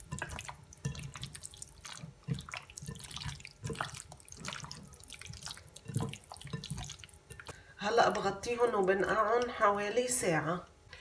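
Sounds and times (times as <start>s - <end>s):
hands squelching wet chicken: 0.0s - 7.7s.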